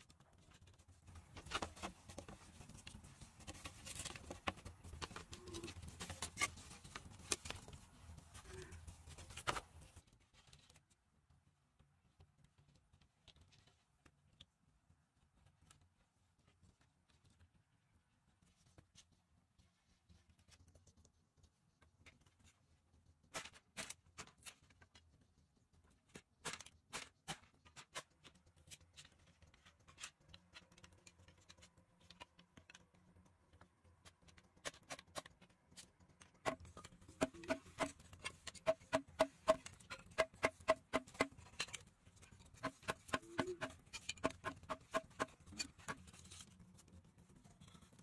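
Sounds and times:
bamboo sticks clicking: 42.6 - 46.0.

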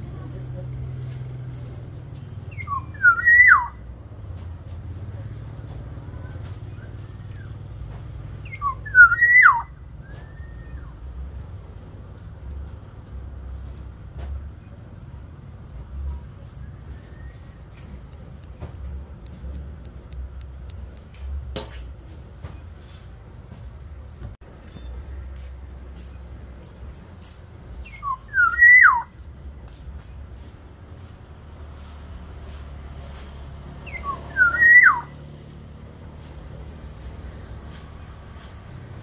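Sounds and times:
bird fluting whistle: 2.5 - 3.8, 8.5 - 11.0, 27.8 - 29.2, 33.8 - 35.2
sharp click: 17.4 - 21.8.

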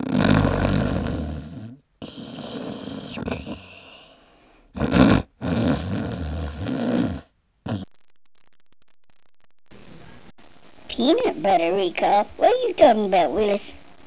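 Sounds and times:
person snoring: 0.0 - 7.9.

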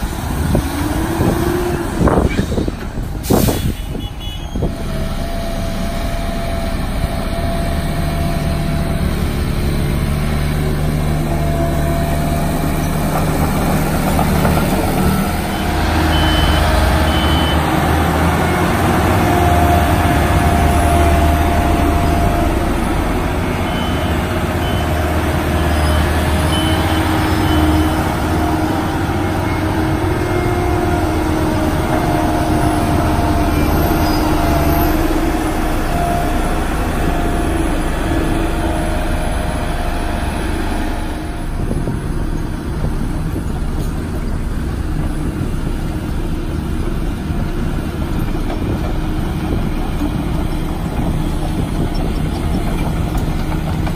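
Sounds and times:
crawler dozer diesel engine: 0.0 - 53.9
road roller diesel engine: 0.0 - 53.9.

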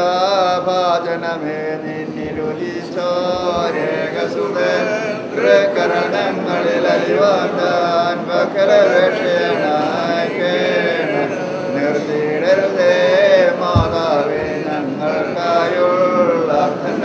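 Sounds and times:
voices chanting a prayer: 0.0 - 17.0.

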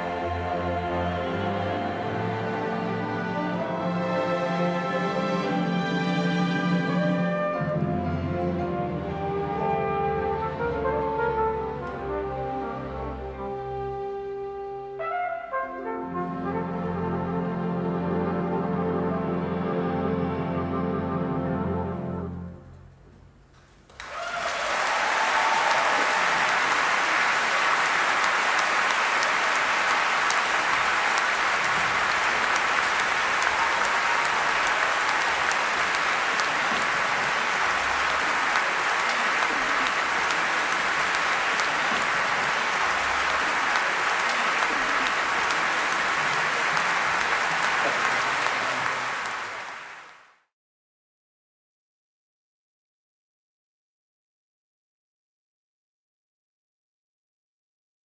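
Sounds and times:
audience applauding: 23.9 - 50.4.

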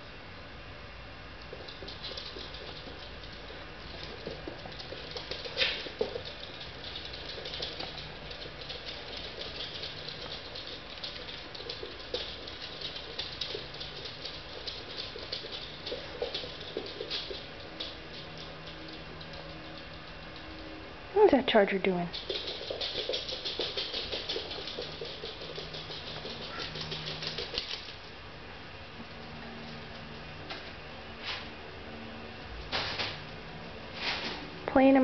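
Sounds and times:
dog claws clicking on floor: 1.4 - 20.8, 22.1 - 28.1.

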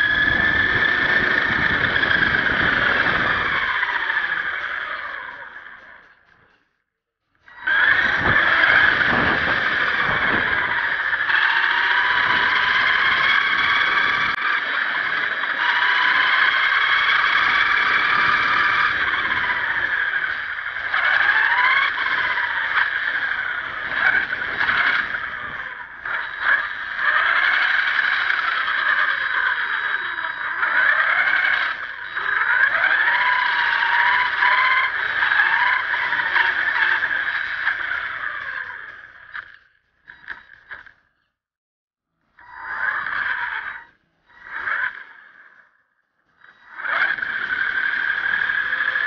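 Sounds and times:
toy truck motor whine: 0.0 - 6.6, 7.3 - 41.3, 42.3 - 49.0.

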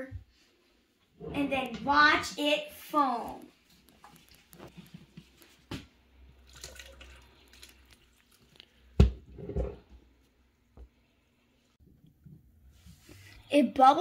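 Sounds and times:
dripping and small splashes: 3.4 - 5.5, 6.2 - 9.0
water pouring: 6.3 - 8.8.

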